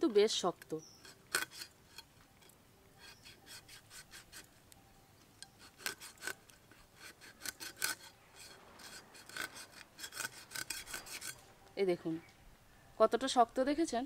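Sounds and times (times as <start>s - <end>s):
knife scraping tough skin: 0.8s - 2.1s, 3.0s - 4.6s, 5.4s - 11.4s.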